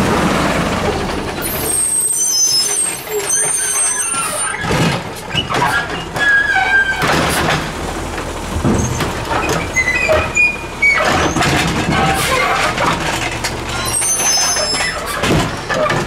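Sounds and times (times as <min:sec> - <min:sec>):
truck engine running: 0:00.0 - 0:02.1, 0:04.3 - 0:16.0
short squeals: 0:01.5 - 0:04.7, 0:08.8 - 0:12.6, 0:13.7 - 0:15.2.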